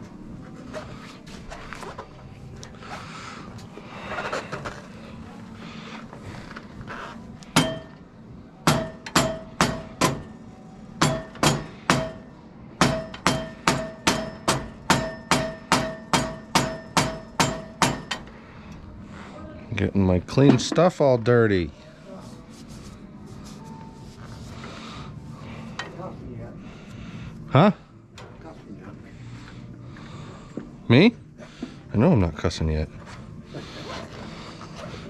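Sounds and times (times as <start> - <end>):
hammer striking metal: 7.5 - 8.0, 8.6 - 10.4, 11.0 - 18.3.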